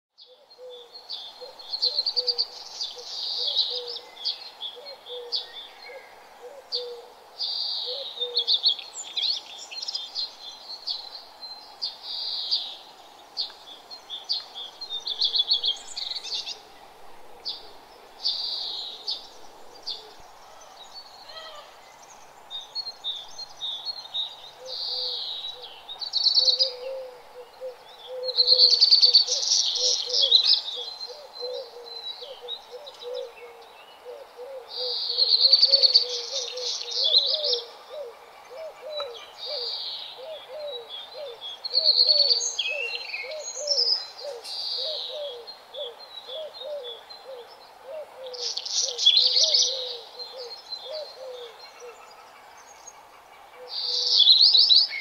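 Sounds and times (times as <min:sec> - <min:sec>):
birds chirping and singing: 0:00.2 - 0:55.0.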